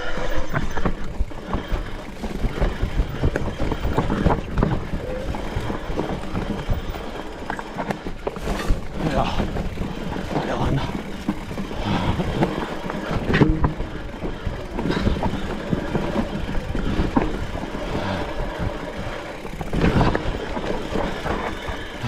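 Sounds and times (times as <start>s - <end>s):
tyre rumble and rattling: 0.0s - 22.0s
sharp knocks from bike: 13.0s - 13.9s.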